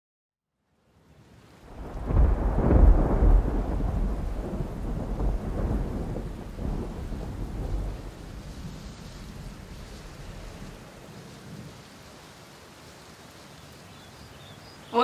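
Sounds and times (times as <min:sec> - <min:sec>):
rain hissing: 0:00.7 - 0:15.0
thunder rolling: 0:01.7 - 0:10.8.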